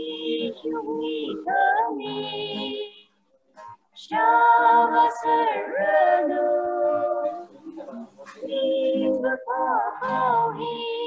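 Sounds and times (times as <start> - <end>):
group singing a hymn: 0.0 - 3.0, 4.0 - 11.0
acoustic guitar: 0.0 - 11.0.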